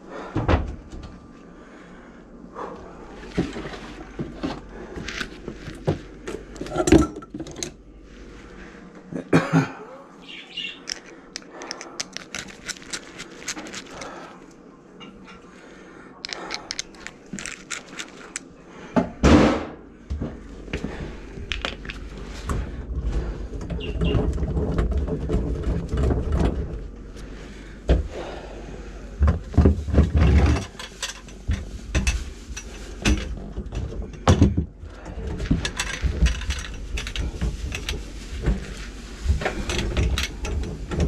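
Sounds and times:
low rumbling movement noise: 0.0 - 9.2, 10.5 - 41.0
knocks clatters and scrapes: 3.2 - 7.8, 10.9 - 14.3, 16.3 - 18.5, 20.2 - 28.1, 29.2 - 41.0.

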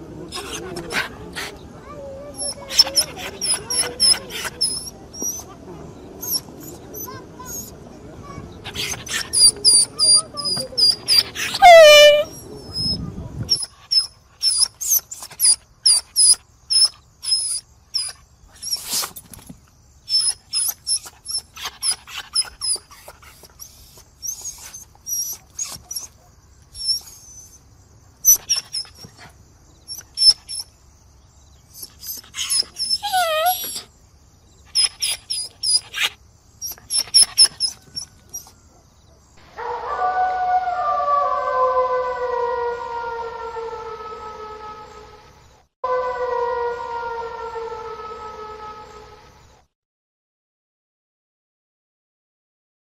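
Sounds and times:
dog whimpering and yipping: 0.3 - 5.6, 6.2 - 7.8, 8.7 - 19.1, 20.1 - 27.6, 28.2 - 29.3, 29.9 - 30.7, 31.7 - 33.9, 34.7 - 38.6.

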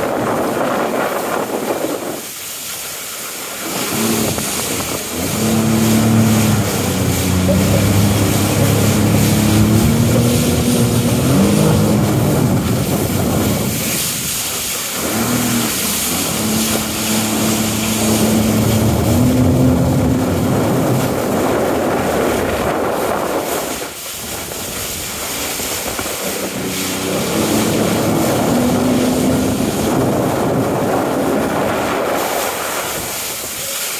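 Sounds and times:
jet ski engine revving: 2.9 - 33.9
hiss of spray and wind: 23.0 - 33.9.

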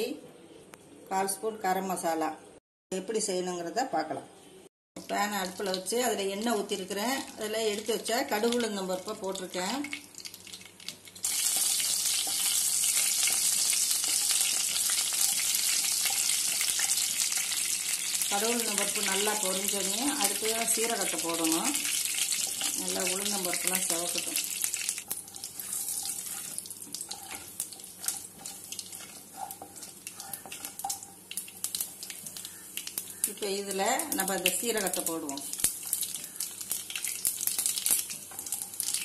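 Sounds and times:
seeds sizzling in hot oil: 5.1 - 39.0
seeds crackling and spluttering: 9.9 - 39.0
wooden spatula stirring: 11.5 - 17.3, 18.7 - 33.2, 35.8 - 39.0
seeds popping: 34.0 - 39.0.

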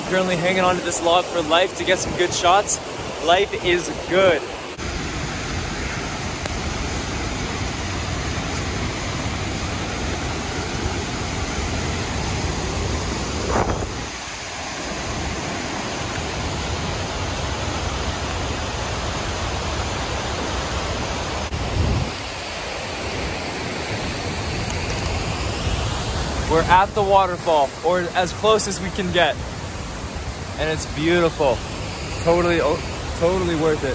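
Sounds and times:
waterfall roaring: 0.0 - 33.9
wind noise on microphone: 1.8 - 14.2, 21.4 - 23.4.

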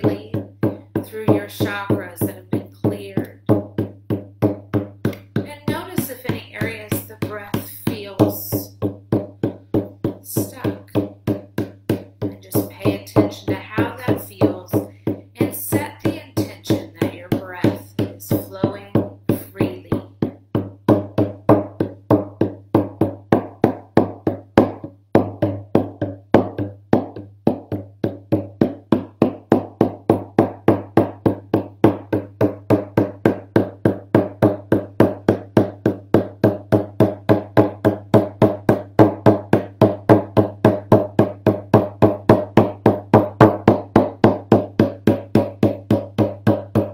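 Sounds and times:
person speaking: 0.0 - 3.4, 5.3 - 8.8, 10.2 - 11.0, 12.3 - 20.2
frame drum beaten: 0.0 - 46.9.

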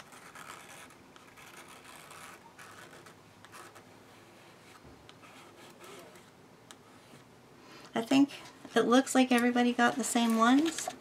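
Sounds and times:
palette knife scraping paint: 0.0 - 7.3.

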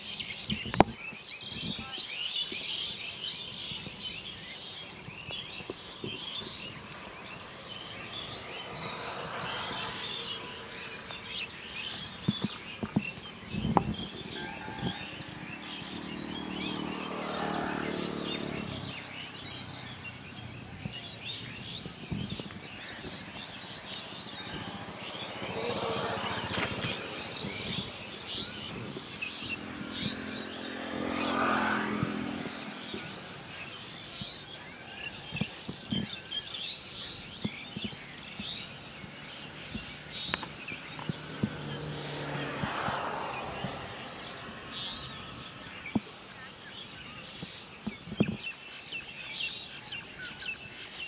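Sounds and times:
small birds chirping: 0.0 - 51.0.

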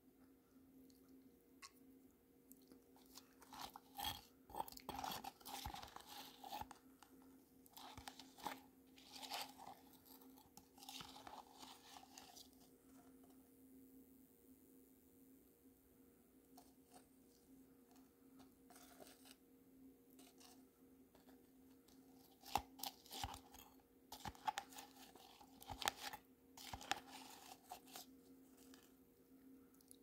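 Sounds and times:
faint steady hum: 0.0 - 30.0
metal spoon scraping plastic tub: 3.1 - 6.8, 7.7 - 12.5.

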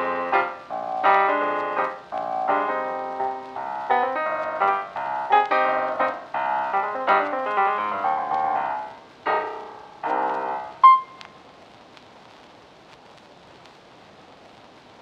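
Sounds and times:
piano-like keyboard music: 0.0 - 11.3.

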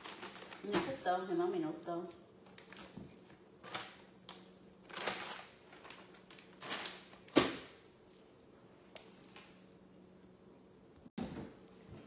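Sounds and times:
plastic bag rustling: 0.0 - 1.4, 2.4 - 7.8.

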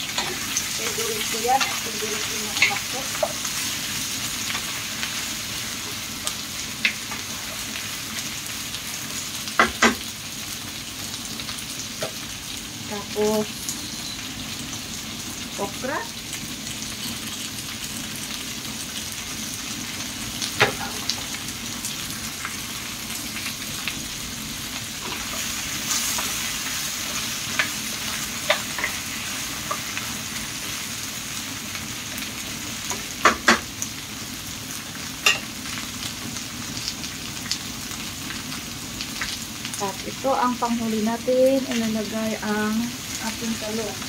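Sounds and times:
vegetables sizzling in hot oil: 0.0 - 44.0.

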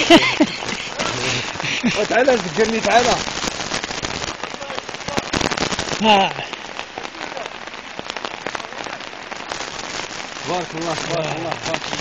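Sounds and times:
floodwater flowing over ground: 0.0 - 12.0
rain hissing: 0.0 - 12.0.

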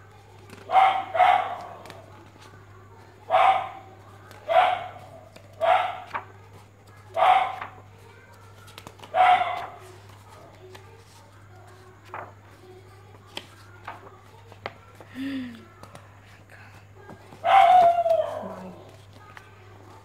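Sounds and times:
dog barking: 0.7 - 2.0, 3.3 - 6.2, 7.1 - 7.8, 9.1 - 9.9, 17.4 - 19.0.

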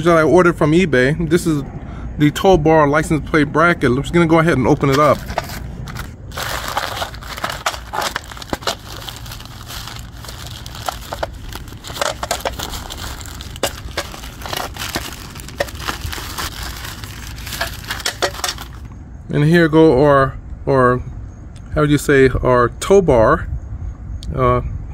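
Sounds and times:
plastic bag crinkling: 4.8 - 18.9
plastic envelope tearing: 4.8 - 18.9.

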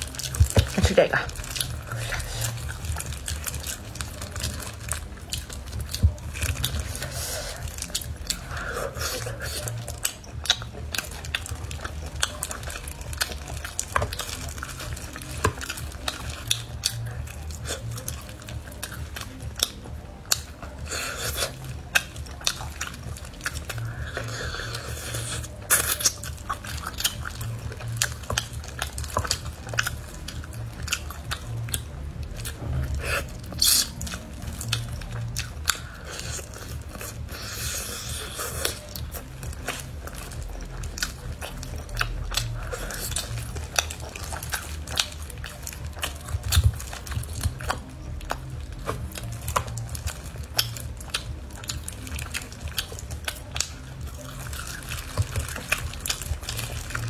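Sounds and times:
wet smacks and clicks: 0.0 - 24.4, 25.1 - 57.0
chewing and biting: 0.0 - 57.0
low steady hum: 0.0 - 57.0.

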